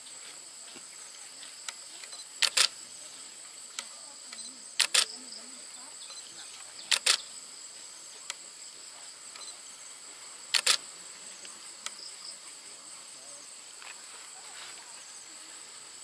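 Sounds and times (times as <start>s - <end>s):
insects chirring: 0.0s - 16.0s
sharp quick clicks: 1.6s - 2.8s, 3.7s - 5.2s, 6.9s - 7.3s, 10.5s - 10.8s.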